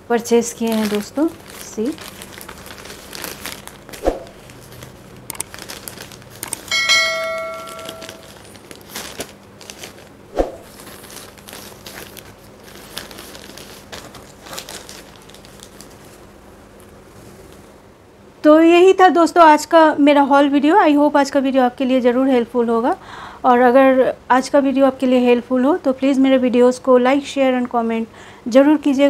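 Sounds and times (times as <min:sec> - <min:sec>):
plastic packaging crinkling: 0:00.2 - 0:16.9
bell-like chime: 0:06.7 - 0:08.3.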